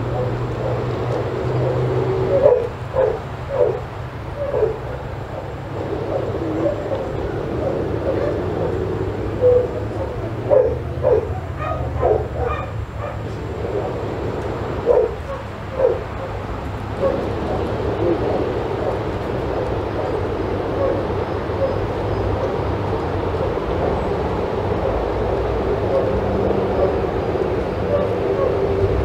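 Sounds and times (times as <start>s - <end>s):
low background rumble: 0.0s - 29.0s
dog barking: 0.1s - 0.9s, 1.6s - 8.8s, 9.4s - 14.0s, 14.8s - 16.4s, 17.0s - 19.1s, 20.8s - 21.8s, 25.9s - 27.1s, 27.8s - 28.7s.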